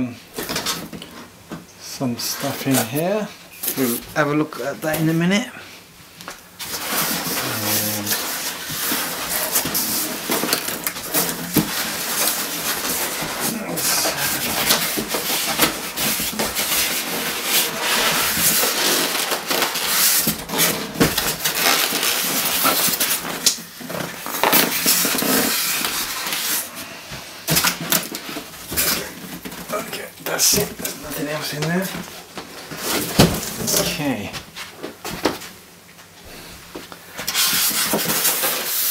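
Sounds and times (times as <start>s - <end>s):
small crackles and knocks: 6.2s - 26.4s
cardboard and foam scraping: 6.6s - 34.2s, 37.2s - 38.9s.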